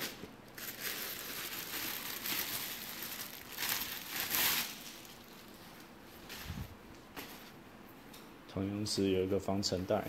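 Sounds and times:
plastic bag crinkling: 0:00.0 - 0:05.7.

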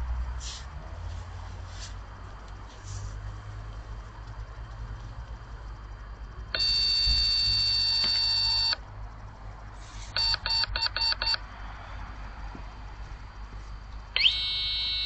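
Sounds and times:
siren beeps: 0:06.6 - 0:08.8, 0:10.2 - 0:11.4, 0:14.2 - 0:15.0.

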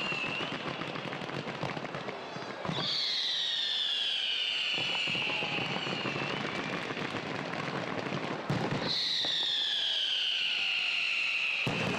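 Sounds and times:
high descending firework whistle: 0:00.0 - 0:01.4, 0:02.6 - 0:07.2, 0:08.8 - 0:11.9
fireworks crackling and popping: 0:00.0 - 0:11.9.

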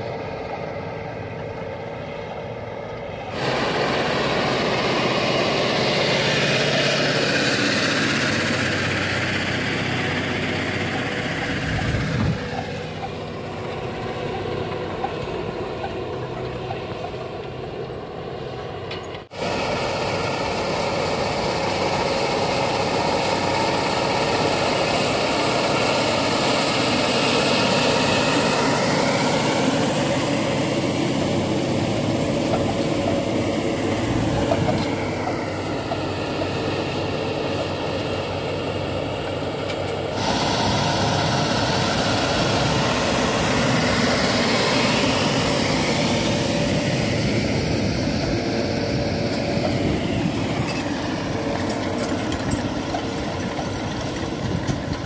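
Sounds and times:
tractor engine under load: 0:00.0 - 0:55.0.

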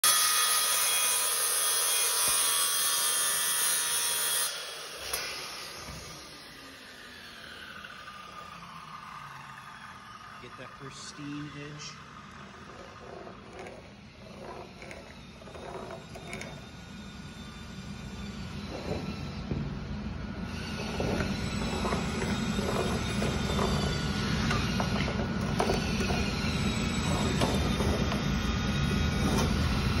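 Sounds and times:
circular saw grinding stone: 0:00.0 - 0:19.4, 0:20.4 - 0:30.0
stick scratching on boards: 0:12.7 - 0:16.6.

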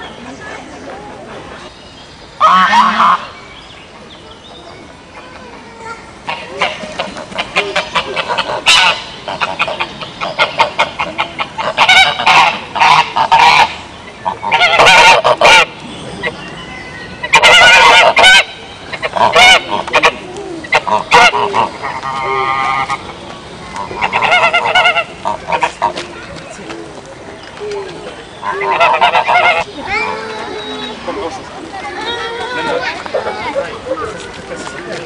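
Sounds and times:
geese honking: 0:02.4 - 0:03.4, 0:06.2 - 0:16.3, 0:17.2 - 0:26.0, 0:28.4 - 0:31.3.

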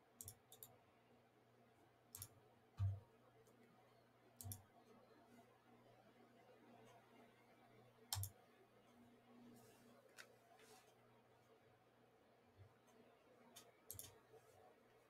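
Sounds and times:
computer mouse clicks: 0:00.2 - 0:00.8, 0:02.1 - 0:03.6, 0:04.4 - 0:04.7, 0:08.1 - 0:08.4, 0:12.9 - 0:14.2.

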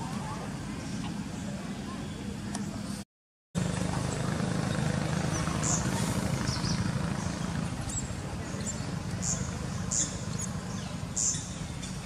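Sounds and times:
low motor hum: 0:03.6 - 0:12.0.

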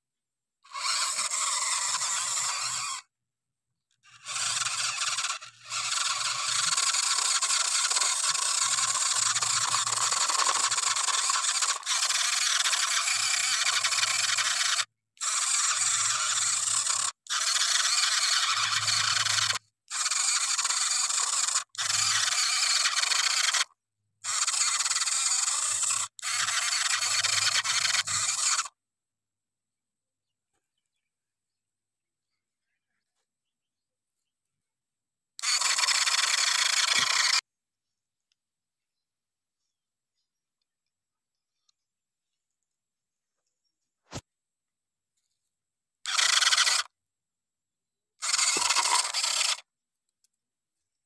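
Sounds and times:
small toy motor running: 0:00.6 - 0:03.1, 0:03.9 - 0:28.8, 0:35.4 - 0:37.5, 0:46.0 - 0:47.0, 0:48.2 - 0:49.8
toy tractor wheels scraping in gravel: 0:00.7 - 0:03.1, 0:04.0 - 0:23.7, 0:35.4 - 0:37.4, 0:48.2 - 0:49.7.

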